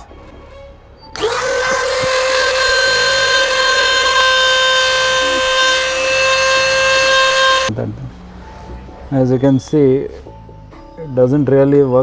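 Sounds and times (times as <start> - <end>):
rotary tool high whine: 1.2 - 7.7.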